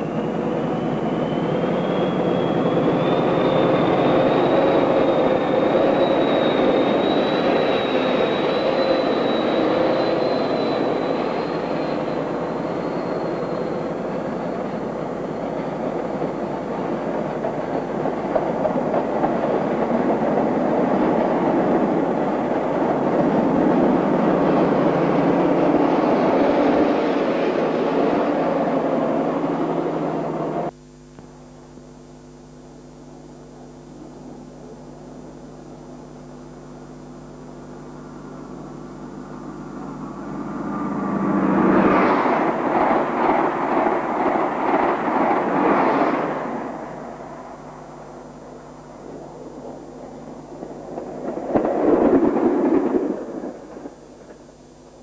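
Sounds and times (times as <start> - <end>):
train approaching and passing: 0.0 - 30.7, 38.0 - 54.6
train coaches rushing past: 0.0 - 30.7, 39.3 - 48.0, 50.6 - 54.3.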